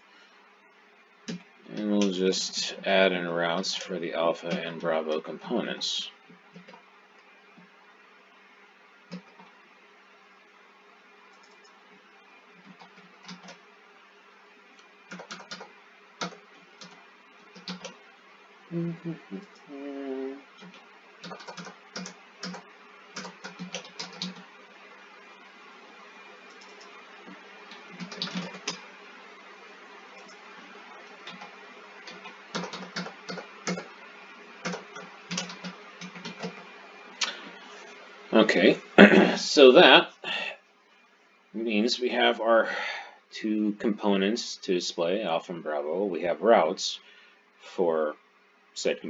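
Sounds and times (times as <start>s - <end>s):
faint steady hum: 0.0s - 49.0s
computer keyboard typing: 6.5s - 6.8s, 9.1s - 9.5s, 11.3s - 11.8s, 12.6s - 13.6s, 15.1s - 18.0s, 20.6s - 24.5s, 26.5s - 28.8s, 31.2s - 33.9s, 34.6s - 36.6s.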